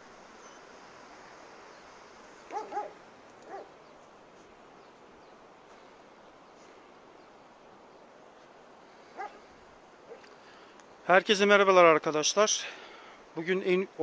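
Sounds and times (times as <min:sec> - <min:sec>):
background hiss: 0:00.0 - 0:14.0
dog barking: 0:02.5 - 0:03.7, 0:09.2 - 0:09.4.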